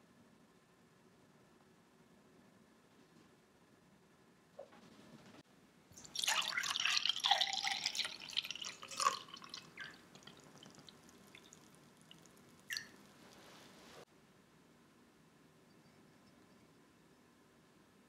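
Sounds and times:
liquid dripping: 5.9s - 13.4s
milk pouring into glass: 5.9s - 13.4s.

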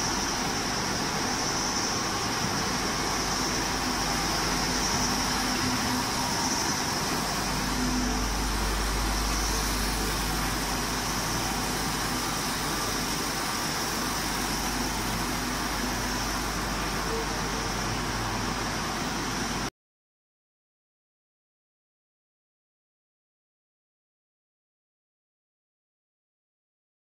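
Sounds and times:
high hiss: 0.0s - 19.7s
machinery humming: 0.0s - 19.7s.

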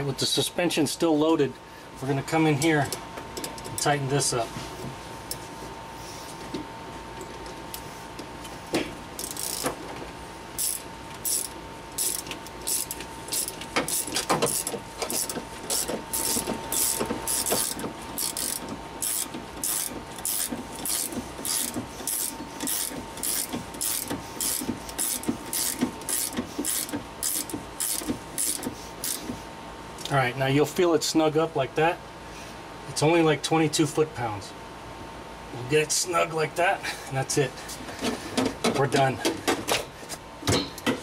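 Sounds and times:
hand ratchet clicking: 9.2s - 9.7s, 10.6s - 29.3s.

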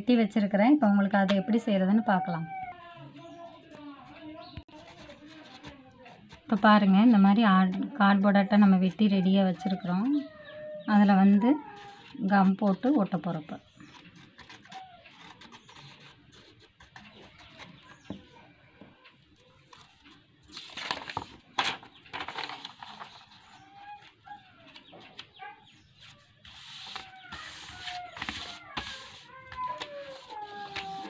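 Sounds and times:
paper rustling and crinkling: 3.3s - 6.6s, 13.7s - 18.2s, 19.5s - 25.3s, 26.0s - 31.0s.

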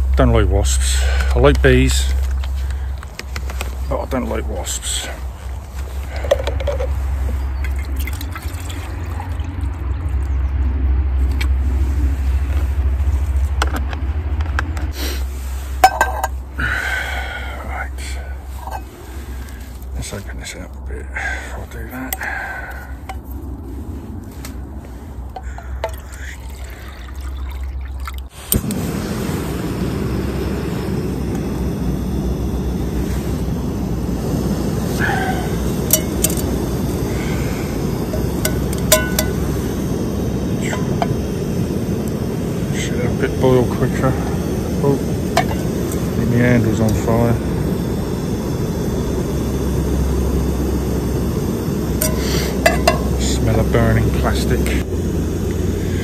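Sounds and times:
gas stove burner hissing: 0.0s - 8.2s, 14.8s - 20.2s, 28.3s - 56.0s
low rumble: 0.0s - 20.1s, 28.6s - 56.0s
water pouring into metal pot: 7.6s - 10.4s, 25.6s - 28.3s
metallic clinks of pot: 15.8s - 16.4s, 35.9s - 36.4s, 38.5s - 39.4s, 52.0s - 53.2s.

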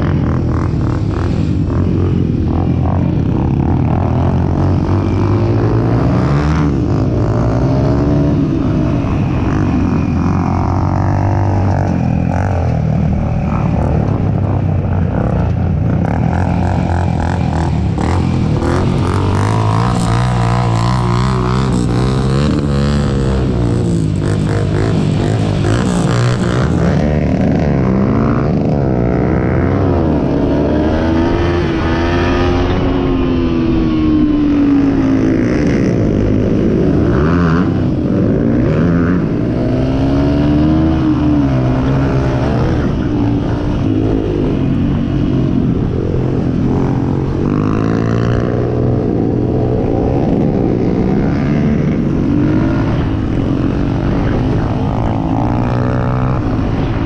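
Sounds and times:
atv engine revving: 0.0s - 33.2s.

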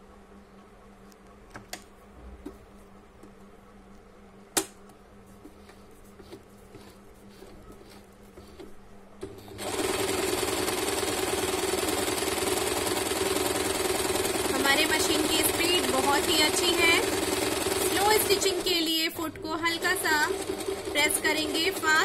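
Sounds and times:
electric sewing machine running: 9.2s - 22.0s.

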